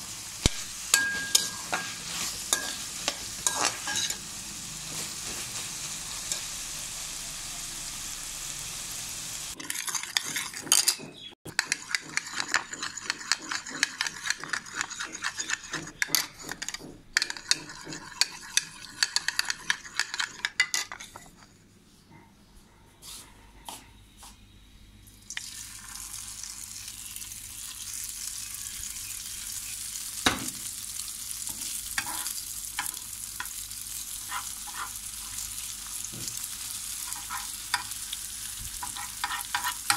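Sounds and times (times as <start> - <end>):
vegetables sizzling in a pan: 0.0 - 10.5, 25.2 - 39.9
egg sizzling in hot oil: 0.0 - 10.6, 11.5 - 16.1, 17.2 - 20.4, 25.2 - 39.9
spoon beating egg in bowl: 9.6 - 21.4, 38.8 - 39.9.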